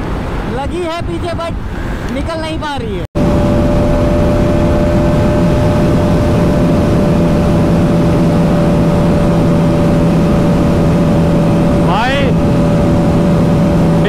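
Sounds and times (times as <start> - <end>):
heavy wind rush: 0.0 - 14.0
motorcycle engine at high speed: 3.2 - 14.0.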